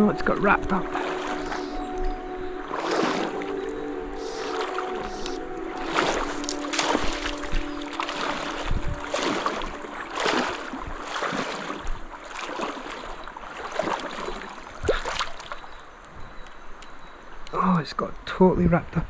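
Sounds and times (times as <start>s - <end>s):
water sloshing and splashing: 0.0s - 16.9s.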